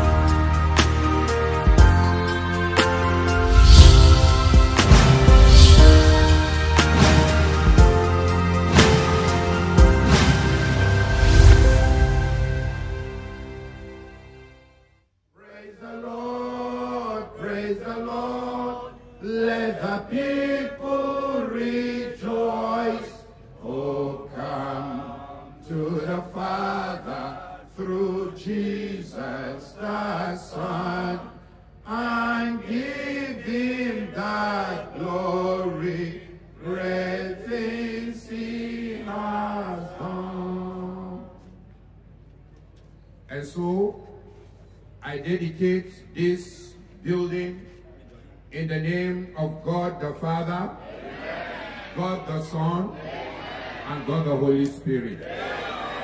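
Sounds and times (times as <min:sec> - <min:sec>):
man chanting through a microphone: 0:48.5 - 0:50.8.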